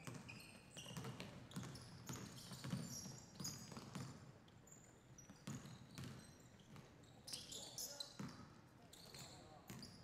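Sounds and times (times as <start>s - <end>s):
basketball bouncing on wooden floor: 0.0s - 0.2s, 0.8s - 4.2s, 5.4s - 6.9s
sneakers squeaking: 0.0s - 4.1s, 4.7s - 10.0s.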